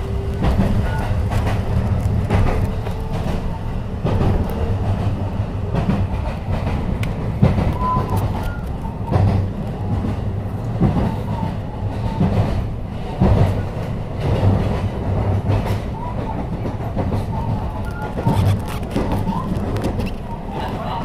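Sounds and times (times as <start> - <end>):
train low rumble: 0.0 - 21.0
wheels knocking over rail joints: 0.2 - 10.1.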